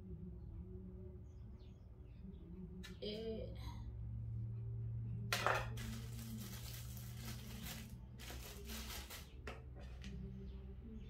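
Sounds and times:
plastic bag crinkling: 5.7s - 9.4s.

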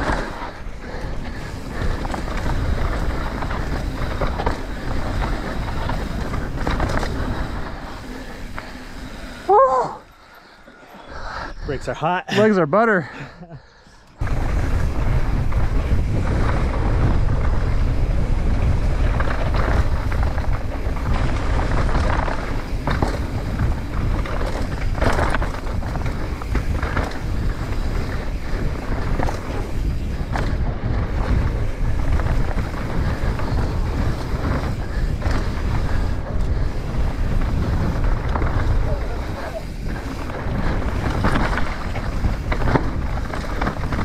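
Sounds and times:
wind buffeting camera: 0.0s - 10.1s, 14.0s - 44.0s
tyre noise on dry dirt: 0.0s - 10.2s, 14.2s - 44.0s.

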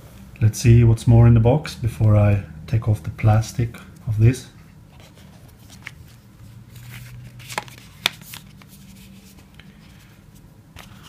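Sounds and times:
cardboard rustling: 4.9s - 11.0s.

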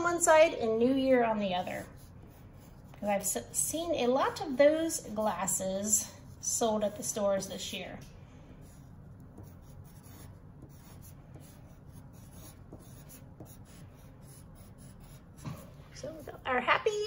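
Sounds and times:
pen scratching on paper: 8.6s - 15.6s.

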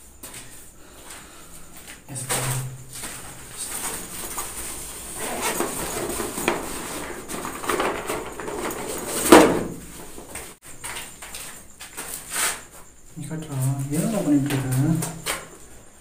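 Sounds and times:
clothing rustling against microphone: 2.3s - 10.6s.

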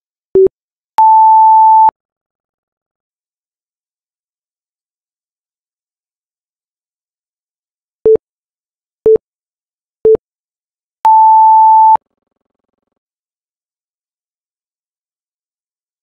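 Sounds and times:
short low timer beeps: 11.1s - 12.0s.

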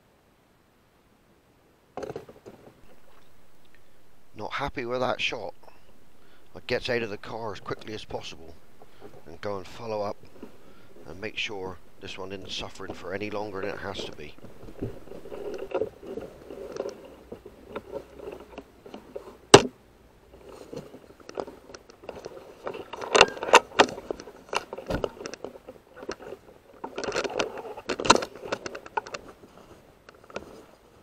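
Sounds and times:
footsteps: 2.0s - 19.7s
air rifle clicks and knocks: 5.8s - 19.8s.

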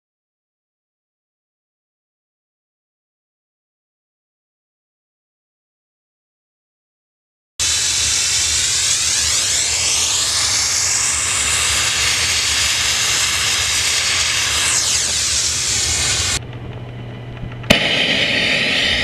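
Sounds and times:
pressure washer jet hissing: 7.6s - 16.4s, 17.7s - 19.0s
steady low hum: 7.6s - 19.0s.

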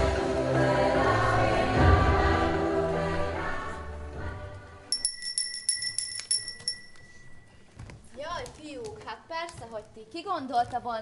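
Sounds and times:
background music: 0.0s - 6.4s
tinkling bell-like chime: 4.9s - 7.5s.

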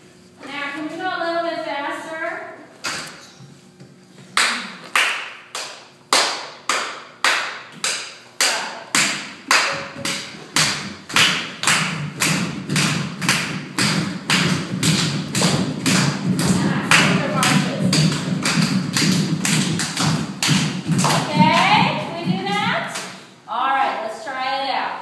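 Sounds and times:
hand claps echoing: 4.3s - 23.3s.

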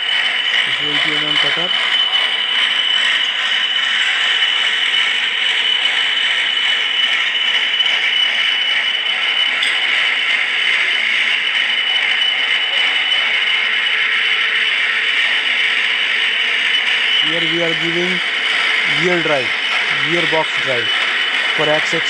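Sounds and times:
milling cutter cutting metal: 17.1s - 22.0s.

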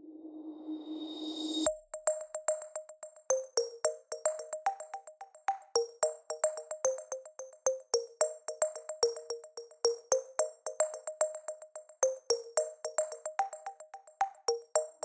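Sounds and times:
light electronic music: 1.7s - 15.0s.

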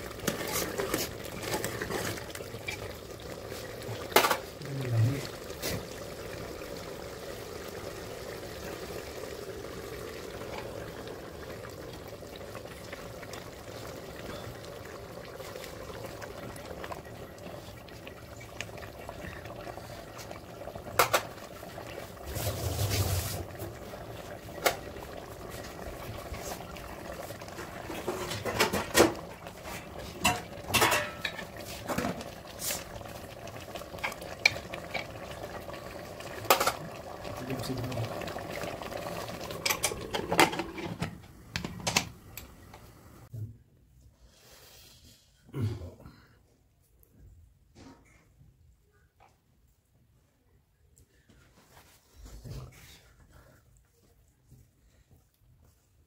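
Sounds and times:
food bubbling in a pot: 0.0s - 43.3s.

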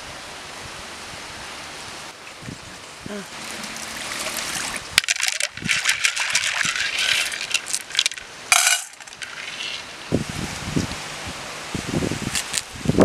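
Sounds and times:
water pouring into a pot: 3.3s - 8.2s.

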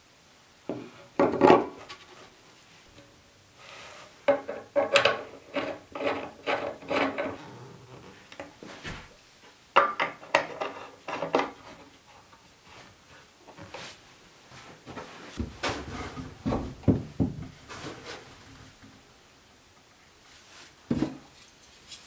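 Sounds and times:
pipe fittings and boards knocking: 0.7s - 1.8s, 4.3s - 7.4s, 15.4s - 17.7s
quiet rubbing: 5.4s - 9.2s.

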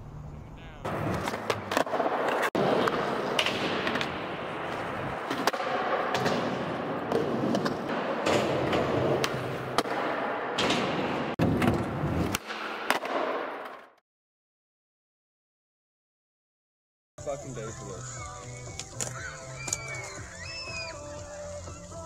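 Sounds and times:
skateboard wheels rolling on pavement: 0.9s - 10.2s, 17.2s - 22.0s.

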